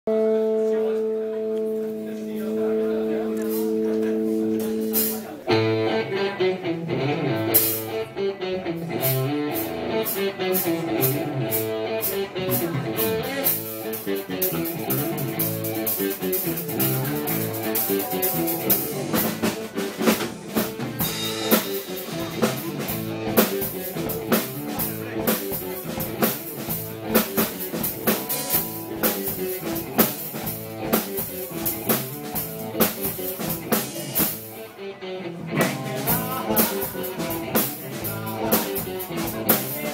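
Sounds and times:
electric guitar: 0:00.1 - 0:39.9
keyboard: 0:00.1 - 0:39.9
drum kit beat: 0:04.7 - 0:05.3, 0:09.0 - 0:34.6, 0:35.5 - 0:39.9.

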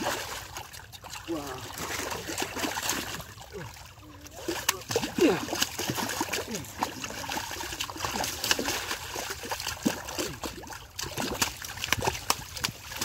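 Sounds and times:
muddy water splashing: 0:00.0 - 0:13.0
sharp splats in mud: 0:04.4 - 0:13.0.

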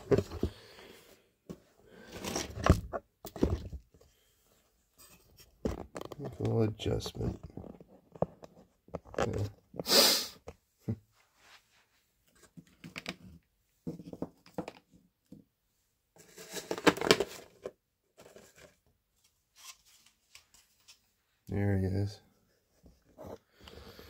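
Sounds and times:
plastic lid crinkling and clicking: 0:05.7 - 0:06.5, 0:12.7 - 0:13.4, 0:16.5 - 0:17.7.

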